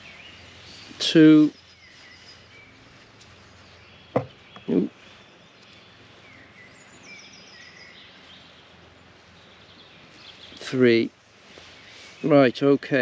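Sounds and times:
birds singing: 0.0s - 13.0s
short dull thud: 4.2s - 4.4s.

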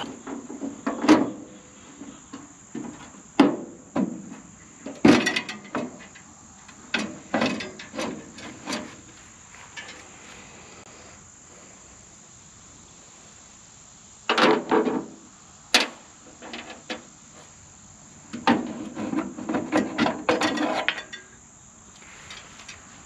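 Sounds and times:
metal clanking and rattling: 4.9s - 6.3s, 6.9s - 9.1s, 9.7s - 10.1s, 18.4s - 21.3s.

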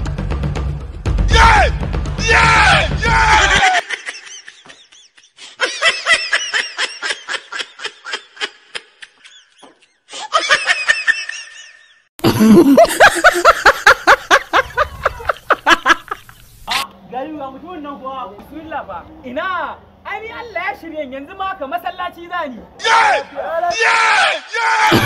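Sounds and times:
rapid laughter: 3.4s - 16.4s.

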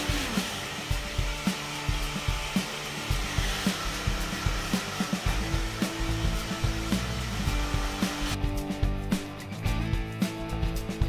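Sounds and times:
hair dryer blowing: 0.0s - 8.4s
background music with steady beat: 0.0s - 11.0s.

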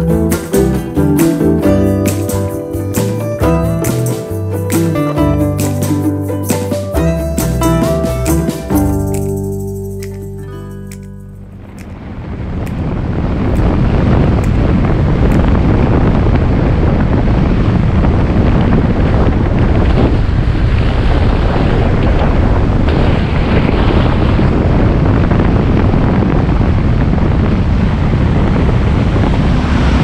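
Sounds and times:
wind buffeting microphone: 11.5s - 30.0s.

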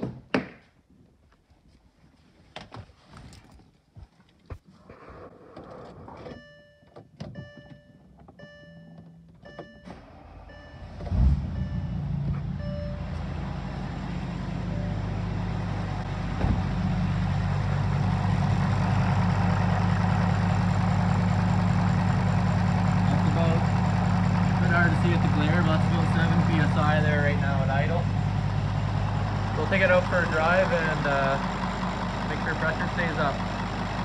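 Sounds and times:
dashboard warning chimes beeping: 6.3s - 13.3s
diesel engine starting and idling: 7.4s - 34.0s.

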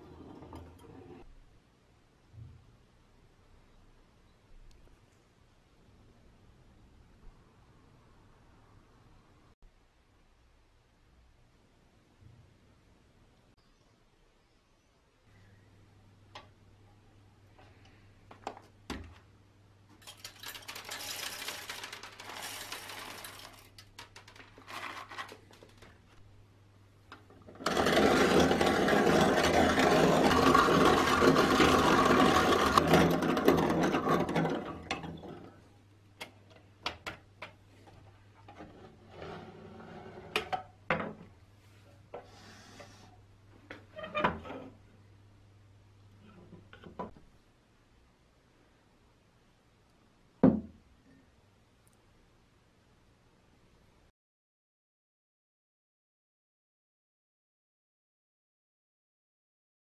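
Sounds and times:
beans rattling into metal hopper: 20.0s - 25.8s, 27.5s - 35.3s
coffee mill grinding beans: 20.0s - 25.8s, 27.4s - 35.4s.

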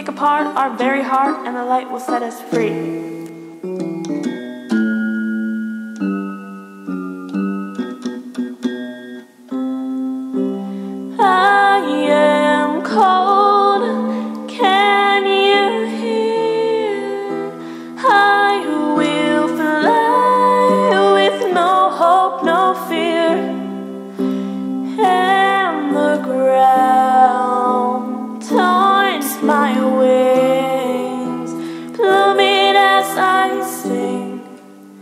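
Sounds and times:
woman singing: 0.0s - 3.1s, 11.1s - 23.8s, 24.9s - 34.8s
electronic keyboard piano chords: 0.0s - 35.0s.

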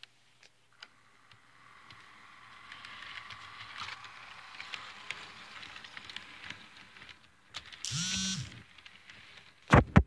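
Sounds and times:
small track clicks: 0.0s - 10.0s
model train wheels hissing on rail: 0.8s - 9.6s.

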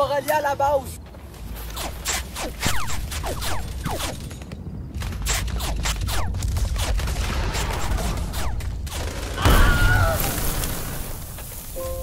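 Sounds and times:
gunshots: 1.7s - 11.1s.

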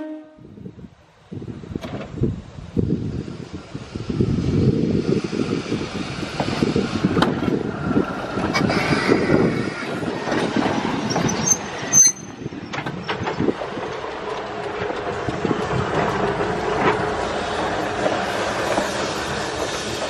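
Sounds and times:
train wheels rumbling over rail joints: 0.0s - 20.0s
high-pitched wheel squeal: 8.5s - 10.2s, 11.0s - 12.8s.

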